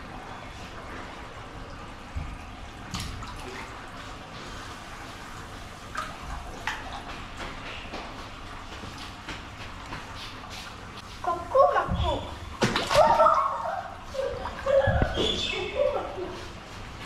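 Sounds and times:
water splashing in fish tank: 0.0s - 17.0s.

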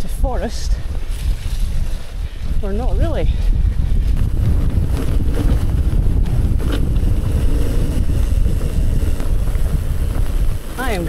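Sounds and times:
wind buffeting microphone: 0.0s - 11.0s
bike knocks and rattles: 4.1s - 11.0s.

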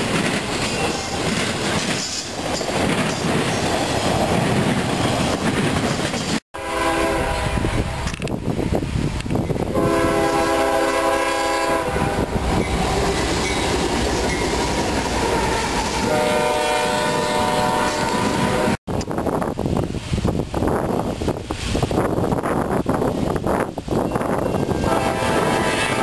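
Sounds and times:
wheels clicking on rail joints: 0.0s - 6.4s, 12.4s - 16.2s
locomotive air horn blasts: 6.6s - 8.1s, 9.7s - 12.4s, 15.3s - 18.8s, 24.6s - 26.0s.

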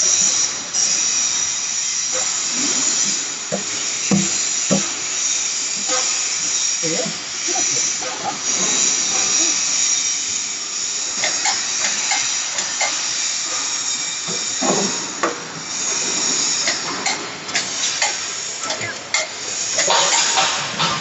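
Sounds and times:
machine hissing: 0.0s - 21.0s
knocks of machine and sheet metal: 3.5s - 5.0s.

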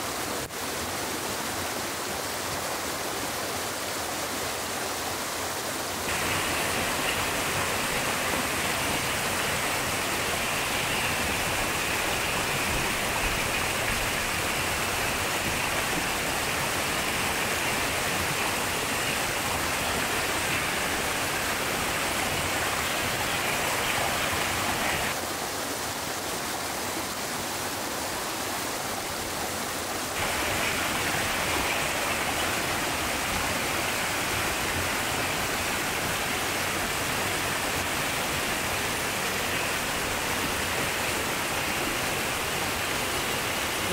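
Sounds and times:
stream and waterfalls rushing: 0.0s - 43.9s.

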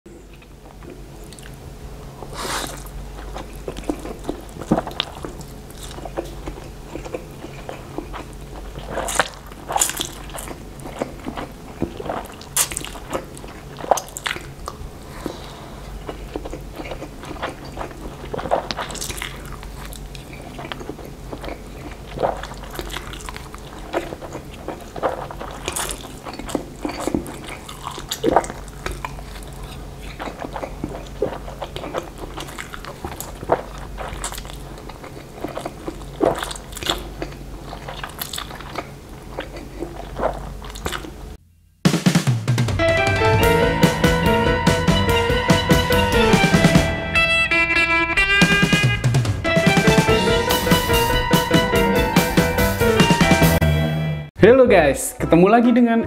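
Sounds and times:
person chewing and smacking: 0.3s - 1.6s, 2.2s - 15.4s, 16.0s - 41.4s
person slurping noodles: 2.3s - 2.9s.

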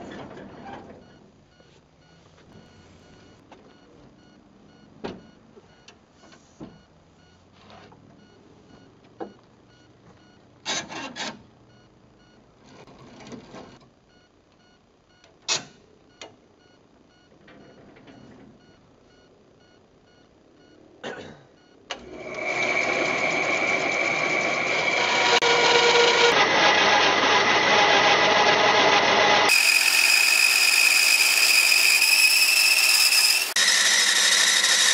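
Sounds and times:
power tool whining: 22.0s - 34.9s.

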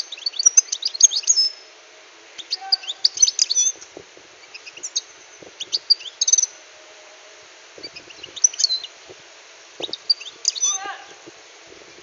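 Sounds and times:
finch twittering: 2.4s - 6.6s, 7.8s - 9.2s, 9.8s - 11.2s.

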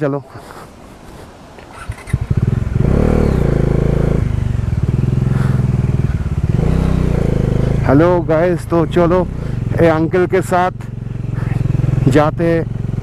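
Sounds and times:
motorcycle engine starting and idling: 1.2s - 13.0s.

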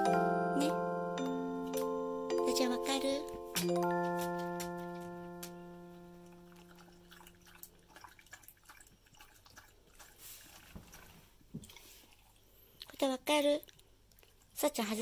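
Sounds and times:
chime note: 0.0s - 6.7s
dog lapping water: 6.3s - 13.0s.

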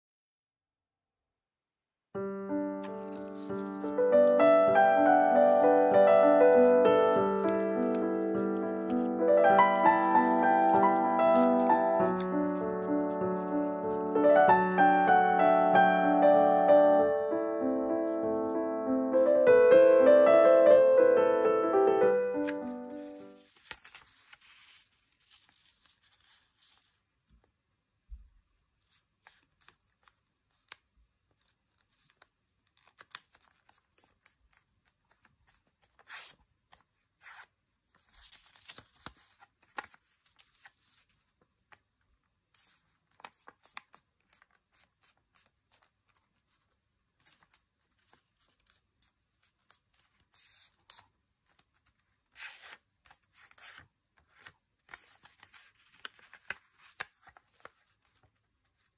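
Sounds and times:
paper crinkling and rustling: 2.7s - 14.2s, 22.3s - 27.6s, 28.7s - 58.9s.

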